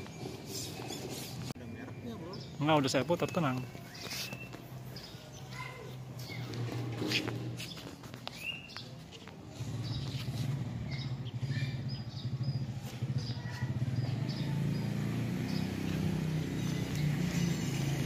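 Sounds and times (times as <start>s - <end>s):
small birds chirping: 0.0s - 18.0s
motor engine running: 9.5s - 18.0s.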